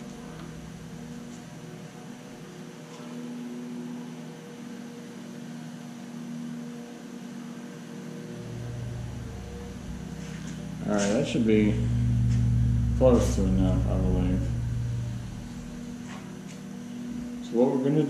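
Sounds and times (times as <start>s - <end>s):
low rumble: 0.0s - 2.6s, 8.3s - 17.8s
steady hum: 0.0s - 18.0s.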